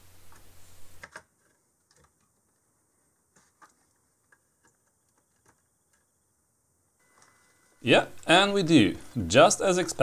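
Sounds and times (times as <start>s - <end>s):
faint clicks and taps: 0.3s - 6.2s.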